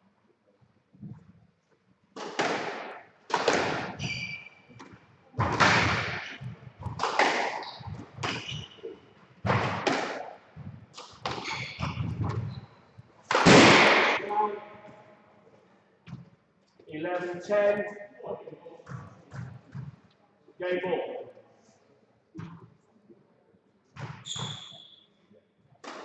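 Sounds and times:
squash ball hitting racket and walls: 2.1 - 15.0, 18.8 - 20.0, 23.9 - 25.0, 25.8 - 26.0
shoes squeaking on wooden floor: 3.8 - 5.0, 6.2 - 9.8, 10.6 - 13.2.

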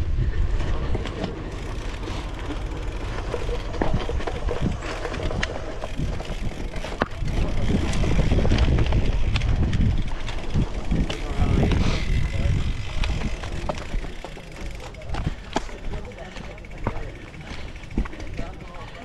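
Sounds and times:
wind rushing on microphone: 0.0 - 1.0, 3.8 - 13.9
bike rattling over bumps: 0.0 - 19.0
tyres on dirt: 0.3 - 19.0.

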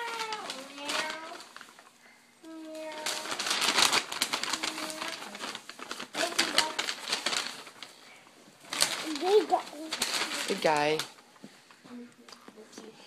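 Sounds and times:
toddler vocal sounds: 2.4 - 3.5, 4.4 - 5.4.

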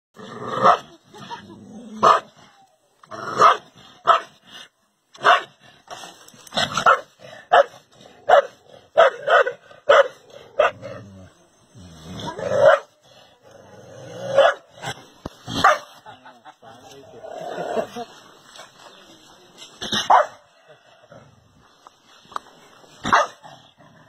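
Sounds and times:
dog barking: 3.4 - 4.3, 5.2 - 5.5, 6.8 - 10.8, 12.6 - 12.9, 14.4 - 14.6, 15.6 - 15.9, 20.1 - 20.4, 23.0 - 23.4.

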